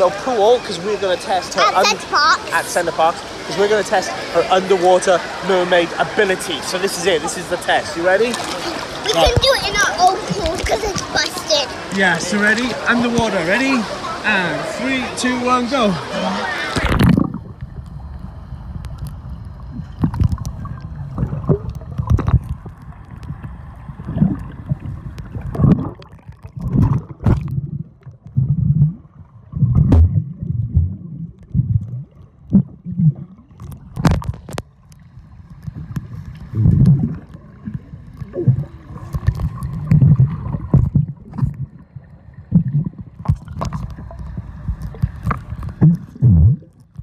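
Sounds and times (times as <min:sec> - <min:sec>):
muffled underwater water movement: 0:03.1 - 0:47.0.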